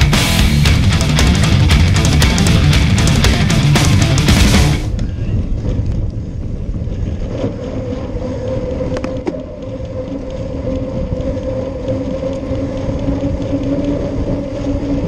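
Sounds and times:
heavy rock music: 0:00.0 - 0:04.9
steady hum: 0:00.0 - 0:05.0
bicycle tyre noise: 0:00.0 - 0:15.0
wind rumble: 0:00.0 - 0:15.0.

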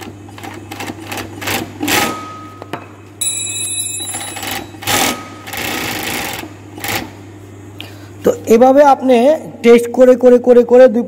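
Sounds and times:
sewing machine running: 0:00.0 - 0:02.1, 0:04.1 - 0:07.1
high ringing tone: 0:02.1 - 0:05.8.

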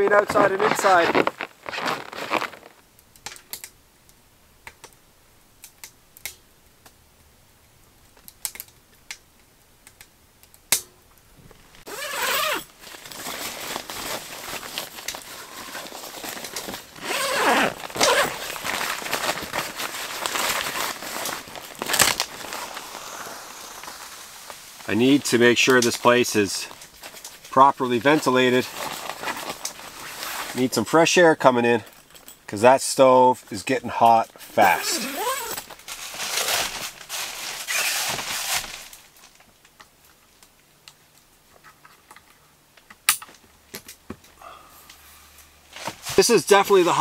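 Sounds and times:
tent fabric rustling: 0:00.0 - 0:02.8, 0:11.8 - 0:30.8, 0:34.4 - 0:39.4, 0:45.6 - 0:47.0.

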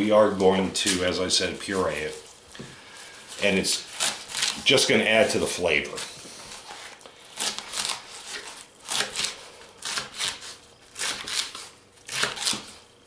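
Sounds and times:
knife slicing leeks on cutting board: 0:06.6 - 0:12.8.

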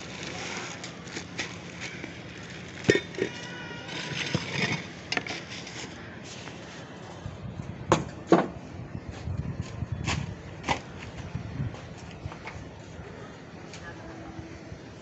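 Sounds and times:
containers knocking and clattering: 0:02.6 - 0:05.5.

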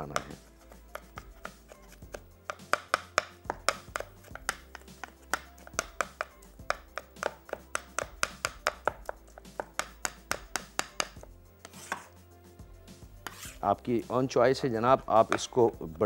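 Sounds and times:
knife chopping on wooden board: 0:00.0 - 0:12.1, 0:13.2 - 0:13.6.

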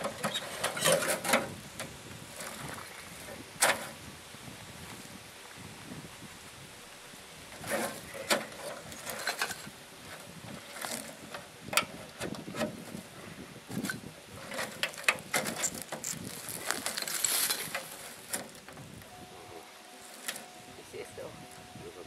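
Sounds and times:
sheet metal clanking and scraping: 0:00.0 - 0:01.6, 0:13.8 - 0:16.2.

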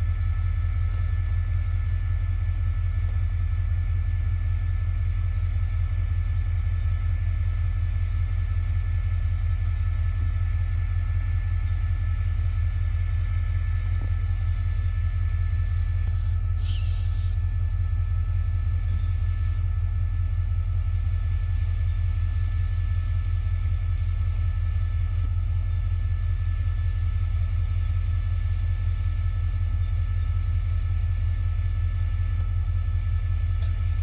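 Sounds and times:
diesel train idling: 0:00.0 - 0:26.1, 0:31.7 - 0:34.0
faint high whines: 0:09.9 - 0:19.6
brief hiss: 0:16.1 - 0:17.4.

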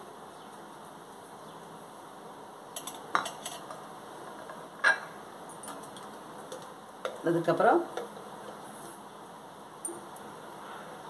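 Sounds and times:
faint steady hiss: 0:00.0 - 0:11.0
dishes and utensils clinking: 0:02.8 - 0:07.2.

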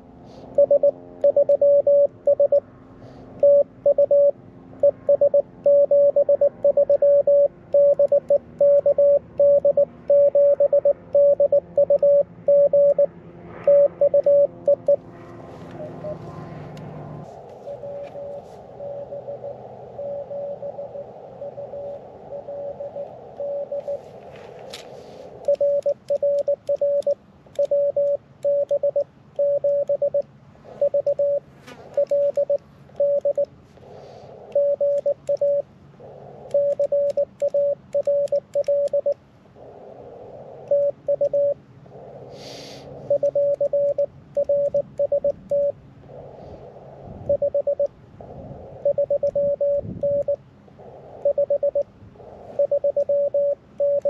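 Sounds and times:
faint received morse signal: 0:00.5 - 0:02.6, 0:03.4 - 0:15.0, 0:15.7 - 0:16.4, 0:17.6 - 0:24.1, 0:25.4 - 0:30.2, 0:30.8 - 0:33.5, 0:34.5 - 0:35.6, 0:36.5 - 0:39.2, 0:40.6 - 0:41.6, 0:43.1 - 0:45.8, 0:47.2 - 0:47.9, 0:48.8 - 0:50.4, 0:51.2 - 0:51.9, 0:52.5 - 0:54.0
morse code tone: 0:00.6 - 0:02.6, 0:03.4 - 0:15.0, 0:15.7 - 0:16.3, 0:17.6 - 0:24.1, 0:25.4 - 0:30.2, 0:30.8 - 0:33.5, 0:34.5 - 0:35.6, 0:36.5 - 0:39.2, 0:40.7 - 0:41.6, 0:43.1 - 0:45.8, 0:47.3 - 0:47.9, 0:48.8 - 0:50.4, 0:51.2 - 0:51.9, 0:52.5 - 0:54.0
radio receiver hiss: 0:42.3 - 0:44.0.

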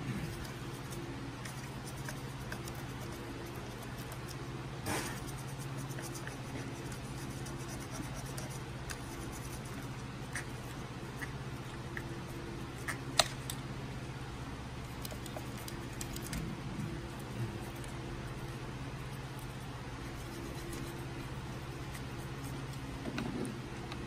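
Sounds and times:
steady low hum: 0:00.0 - 0:24.0
needle tool scratching paint: 0:00.2 - 0:11.3, 0:19.4 - 0:21.1.

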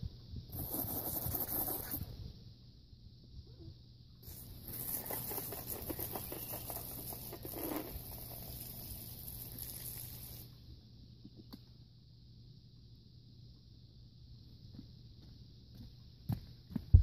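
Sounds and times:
garden hose water spraying: 0:04.2 - 0:10.5.

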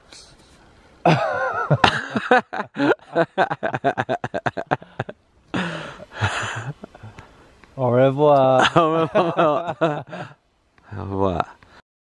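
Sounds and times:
person laughing: 0:01.0 - 0:07.0.

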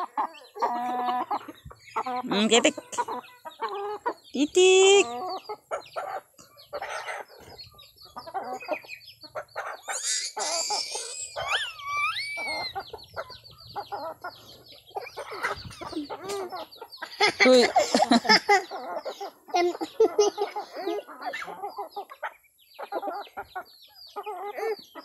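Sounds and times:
chickens clucking: 0:00.0 - 0:25.0
chicken call rising and falling: 0:09.8 - 0:12.8.

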